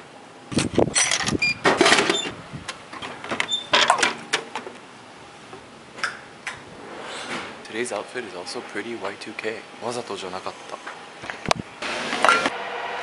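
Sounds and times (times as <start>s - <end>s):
coins clinking into coin slot: 0.9s - 1.4s.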